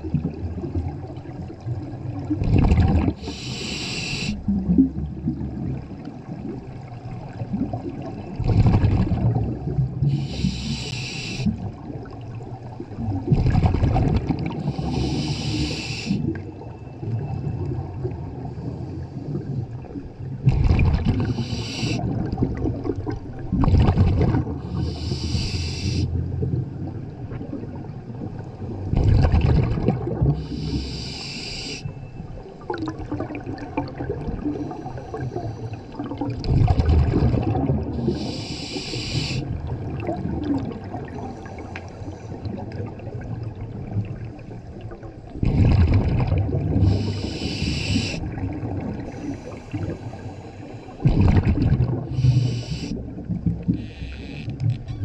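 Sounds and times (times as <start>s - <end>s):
exhaled bubbles gurgling: 0.0s - 54.9s
regulator inhale hiss: 3.2s - 4.4s, 10.0s - 11.6s, 14.6s - 16.3s, 21.2s - 22.1s, 24.7s - 26.2s, 30.4s - 31.9s, 38.0s - 39.5s, 46.8s - 48.3s, 49.0s - 51.0s, 52.1s - 53.0s.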